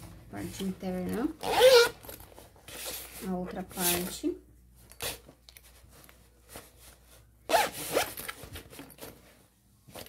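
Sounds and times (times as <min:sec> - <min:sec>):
bag handling sounds: 0:00.1 - 0:04.2, 0:04.8 - 0:10.0
zipper being pulled: 0:01.4 - 0:02.2, 0:07.5 - 0:08.4.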